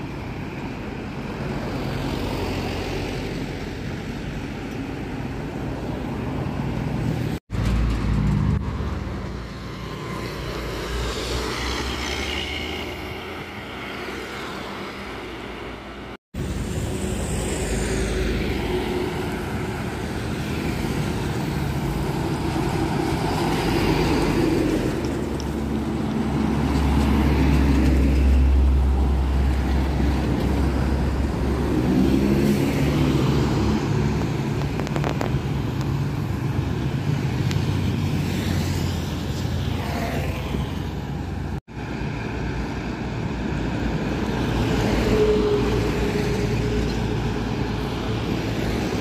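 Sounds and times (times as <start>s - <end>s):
buses and trucks driving past: 0.0s - 49.0s.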